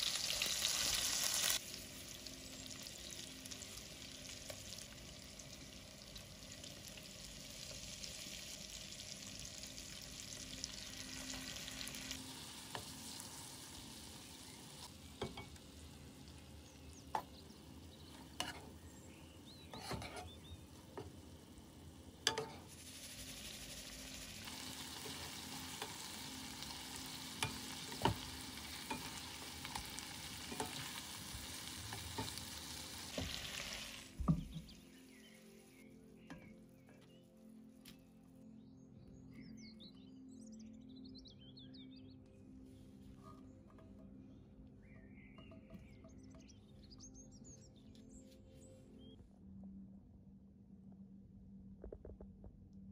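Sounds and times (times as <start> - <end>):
fish sizzling in a frying pan: 0.0 - 18.8, 20.7 - 34.8
spatula scraping a pan: 18.1 - 18.9, 19.6 - 21.1.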